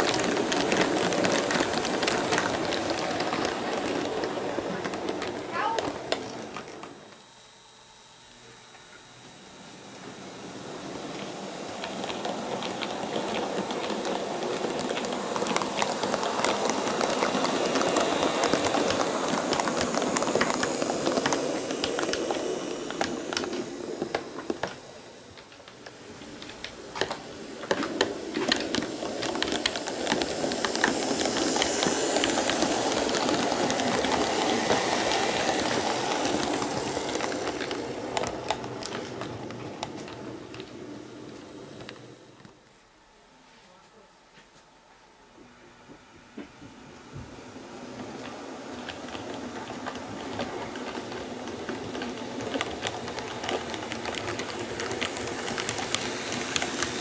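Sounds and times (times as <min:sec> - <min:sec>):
model train motors and wheels rumbling: 0:00.0 - 0:57.0.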